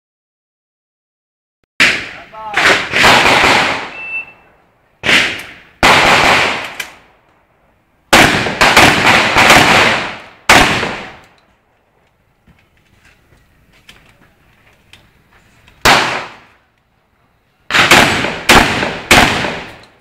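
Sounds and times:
shotgun blasts echoing: 0:01.8 - 0:04.0, 0:05.0 - 0:07.1, 0:08.1 - 0:11.3, 0:15.8 - 0:16.6, 0:17.7 - 0:19.9.

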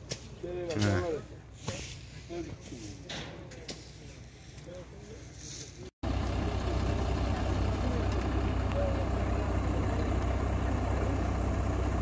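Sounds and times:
heavy engine idling: 0:06.0 - 0:12.0.

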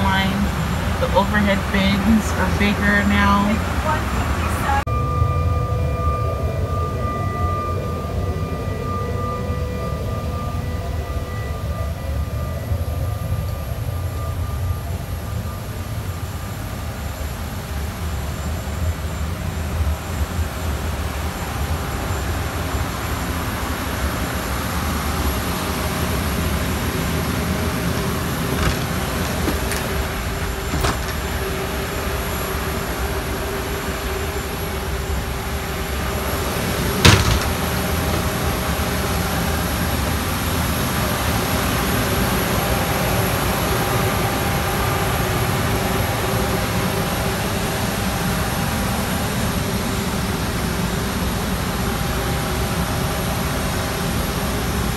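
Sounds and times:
airliner cabin rumble and hiss: 0:12.3 - 0:54.9
sharp knock: 0:37.0 - 0:38.2.

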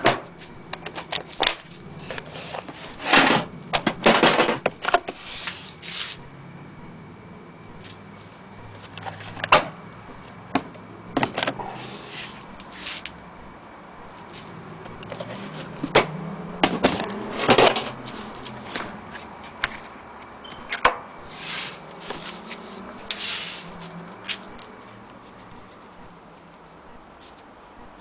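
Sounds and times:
rubbing or scraping: 0:01.7 - 0:03.5, 0:05.0 - 0:06.3, 0:11.6 - 0:13.1, 0:15.2 - 0:16.0, 0:16.7 - 0:19.3, 0:21.2 - 0:24.5.

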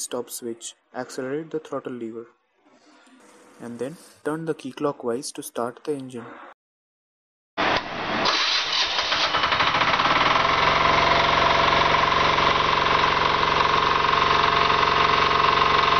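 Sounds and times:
electric starter cranking: 0:08.2 - 0:15.9
small engine running: 0:08.3 - 0:15.9.

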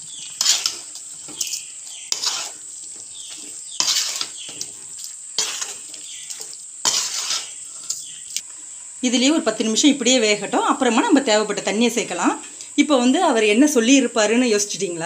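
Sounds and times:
frying sizzle: 0:00.0 - 0:08.4
spoon scraping metal pan: 0:00.1 - 0:08.2.

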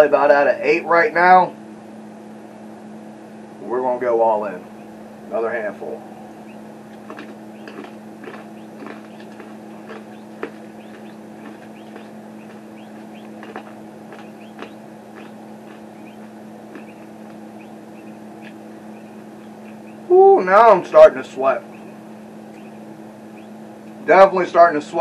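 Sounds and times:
steady electrical hum: 0:00.0 - 0:25.0
chewing crunchy food: 0:07.0 - 0:20.0.

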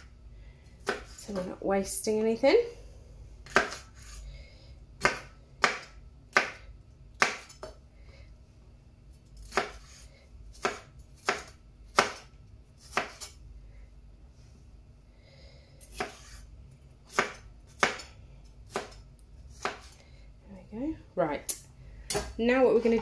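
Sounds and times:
knife chopping on wooden board: 0:05.0 - 0:06.6, 0:07.2 - 0:07.7, 0:09.4 - 0:10.0, 0:10.6 - 0:13.3, 0:17.1 - 0:18.1, 0:19.6 - 0:19.9.

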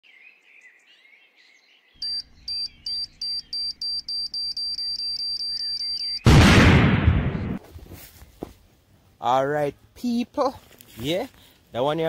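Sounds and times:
high electronic beep: 0:02.0 - 0:06.3
loud burst of noise: 0:06.3 - 0:07.6.

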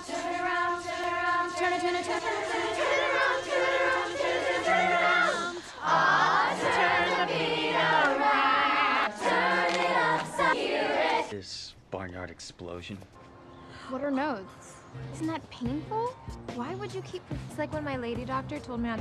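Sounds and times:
female a cappella group singing: 0:00.0 - 0:11.3.

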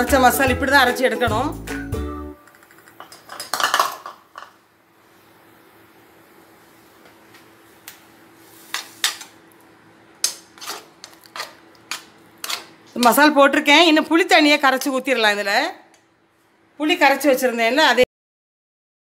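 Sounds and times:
spatula scraping a frying pan: 0:08.4 - 0:09.4, 0:10.2 - 0:12.8.

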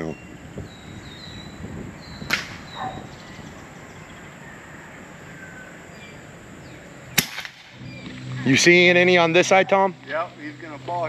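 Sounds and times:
birds chirping faintly: 0:00.0 - 0:11.0
air rifle cracks: 0:02.3 - 0:02.7, 0:07.2 - 0:07.8.

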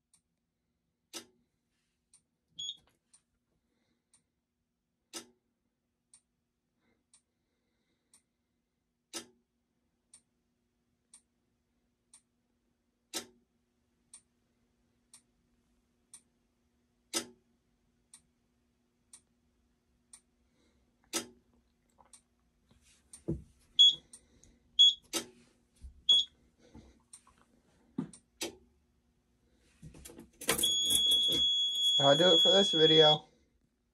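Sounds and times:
keypad beeps: 0:02.6 - 0:02.8, 0:24.8 - 0:25.0, 0:26.1 - 0:26.3, 0:30.5 - 0:33.2.

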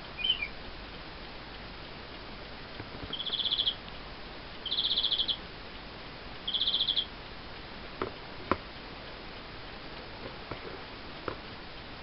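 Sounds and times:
recorded bird call trills: 0:00.0 - 0:00.6, 0:03.1 - 0:03.8, 0:04.6 - 0:05.4, 0:06.4 - 0:07.2.

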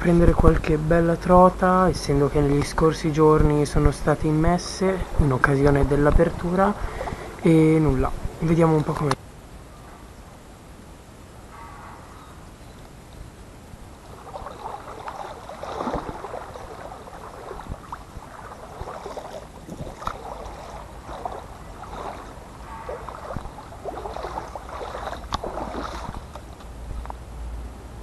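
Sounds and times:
stream water splashing: 0:00.2 - 0:09.2, 0:13.8 - 0:27.1.

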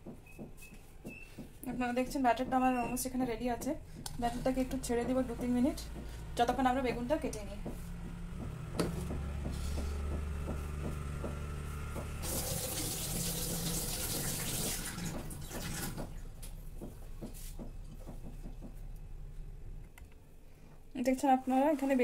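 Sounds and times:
tap water running into sink: 0:12.2 - 0:16.1.

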